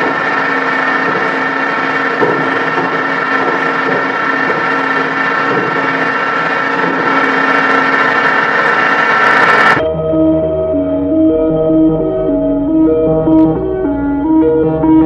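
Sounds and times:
industrial machinery din: 0.0 - 9.9.

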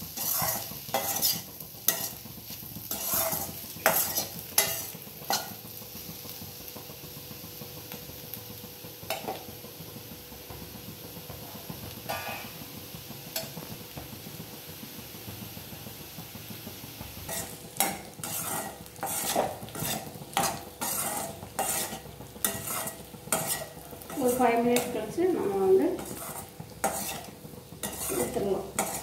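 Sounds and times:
steel spatula scraping pan: 0.0 - 2.2, 2.8 - 5.6, 12.1 - 12.6, 17.3 - 29.0
potatoes sizzling in oil: 0.0 - 29.0.

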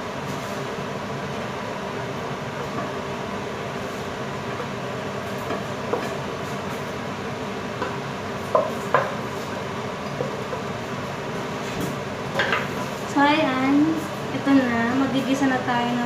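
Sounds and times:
steady background hum: 0.0 - 16.0.

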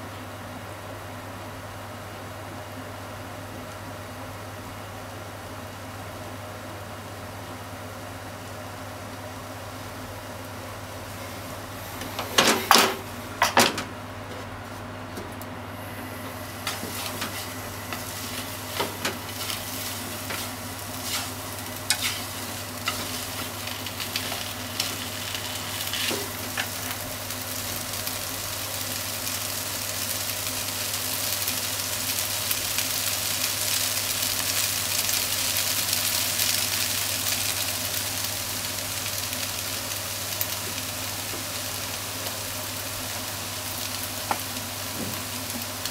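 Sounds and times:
food sizzling in a frying pan: 15.7 - 45.9.

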